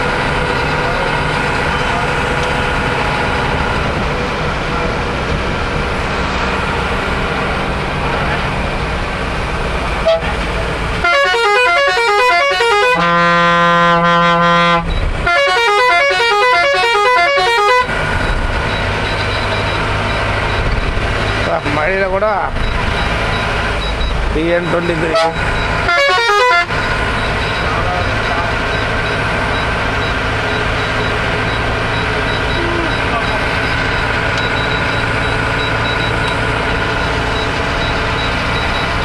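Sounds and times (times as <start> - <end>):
bus engine and road noise: 0.0 - 39.0
multi-tone musical horn: 10.0 - 10.4, 11.0 - 17.9, 25.1 - 26.7.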